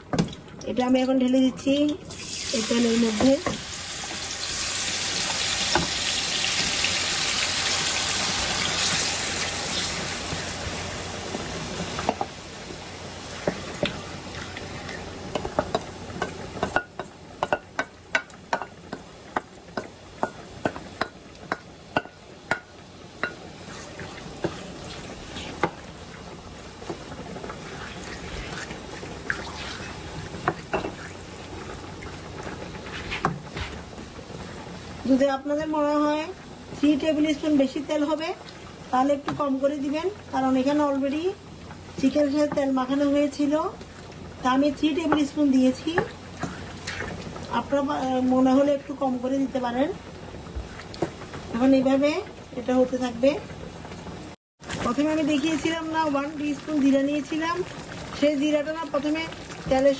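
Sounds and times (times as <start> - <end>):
chicken sizzling in a frying pan: 2.0 - 27.5, 54.6 - 59.9.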